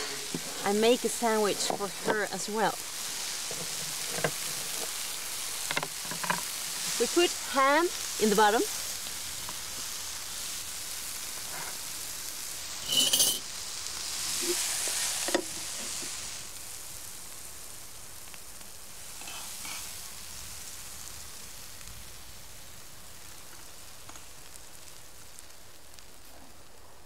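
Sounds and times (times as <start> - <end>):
food sizzling in a frying pan: 0.0 - 27.0
loud scrape: 12.8 - 13.4.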